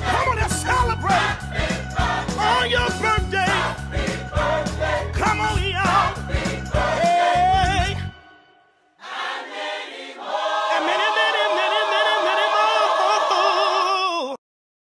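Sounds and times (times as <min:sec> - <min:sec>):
song with a beat: 0:00.0 - 0:08.1
unaccompanied voices singing chord: 0:01.2 - 0:02.5, 0:03.6 - 0:05.1, 0:06.0 - 0:07.4, 0:09.0 - 0:13.7.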